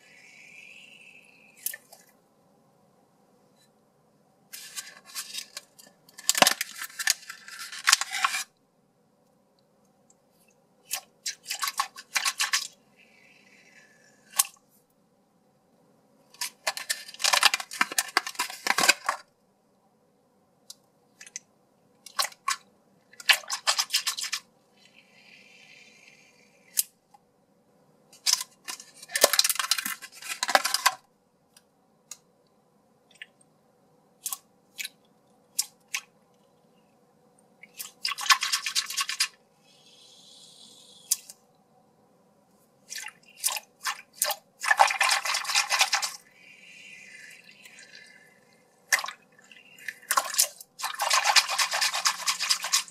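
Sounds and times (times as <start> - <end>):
plastic blister pack crinkling: 16.4 - 19.2, 28.2 - 31.0, 43.5 - 46.2, 49.8 - 52.9.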